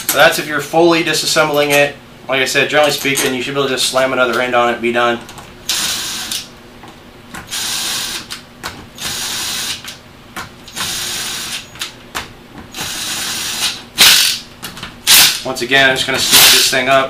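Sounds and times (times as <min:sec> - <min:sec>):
ratchet turning bolts: 0:15.1 - 0:15.5, 0:16.2 - 0:16.8.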